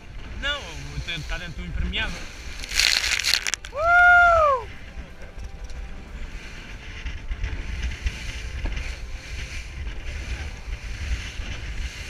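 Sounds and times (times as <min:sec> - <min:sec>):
wind buffeting microphone: 0:00.0 - 0:12.0
rushing water and spray: 0:02.1 - 0:03.8.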